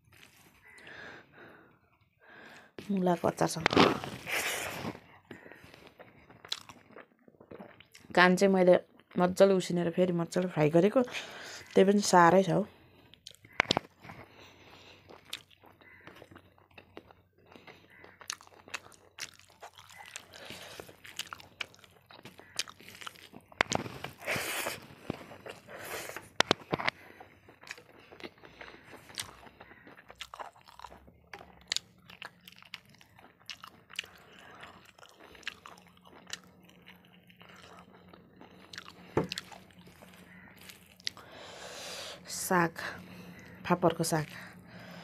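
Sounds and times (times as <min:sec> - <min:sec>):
crunching and chewing: 0:00.0 - 0:01.0, 0:03.5 - 0:08.1, 0:12.8 - 0:42.2, 0:43.0 - 0:45.0.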